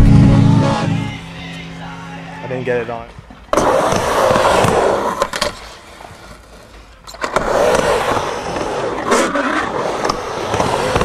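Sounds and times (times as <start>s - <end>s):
skateboard wheels rolling: 3.4s - 11.0s.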